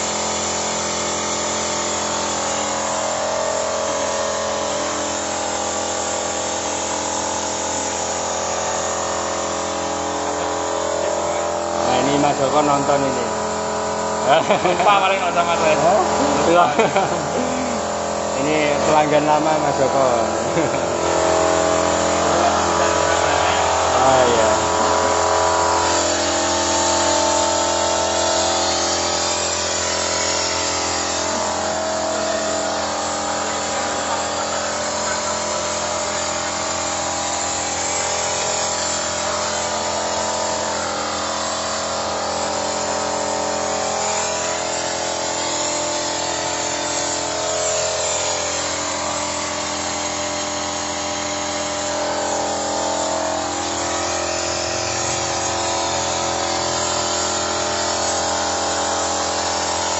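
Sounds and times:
car engine droning hum with whine: 2.4 - 46.4.

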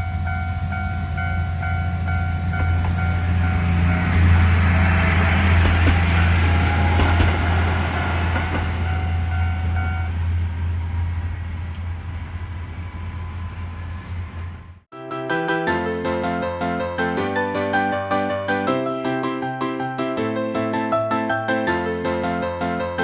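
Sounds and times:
diesel railcar passing: 0.0 - 14.9.

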